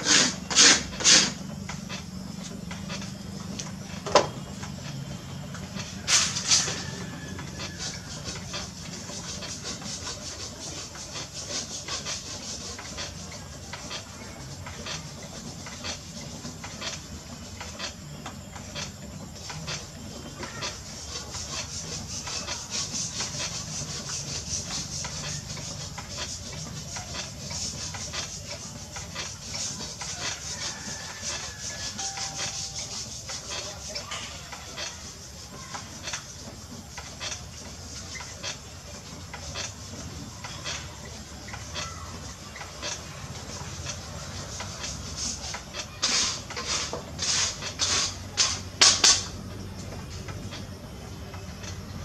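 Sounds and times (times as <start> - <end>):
potter's wheel humming: 0.0 - 52.0.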